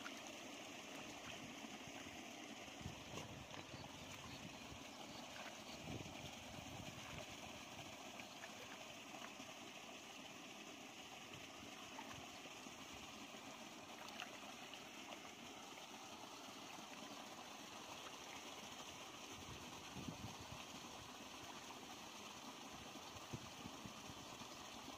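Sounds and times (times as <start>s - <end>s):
muddy water sloshing: 1.1s - 7.4s.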